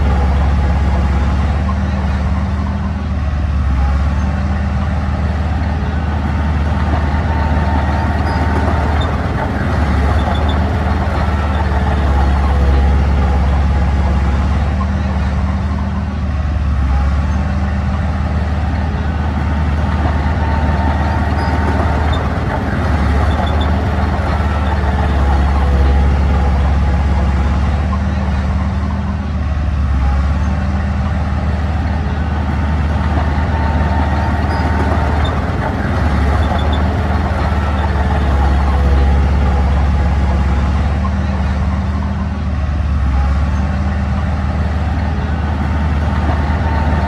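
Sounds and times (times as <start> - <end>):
diesel engine humming: 0.0 - 47.0.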